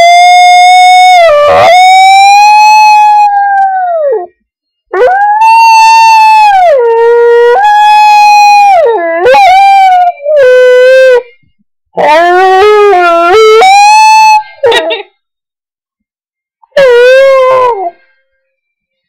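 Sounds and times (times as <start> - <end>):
dog howling: 0.0 - 4.3, 5.0 - 11.2, 12.0 - 14.8, 16.8 - 17.9.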